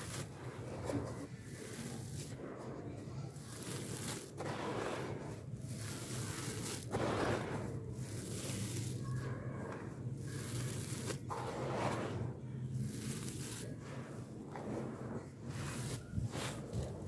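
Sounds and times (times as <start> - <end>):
charcoal powder pouring: 0.0 - 2.4, 3.3 - 9.3, 10.1 - 14.8, 15.4 - 17.0
hands crunching into powder: 3.4 - 9.2, 10.2 - 13.7.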